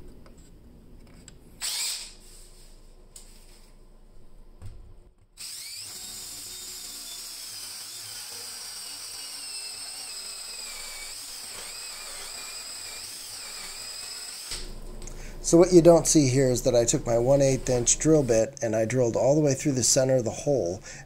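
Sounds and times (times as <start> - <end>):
cordless drill boring through wood: 1.6 - 2.1, 5.4 - 14.7.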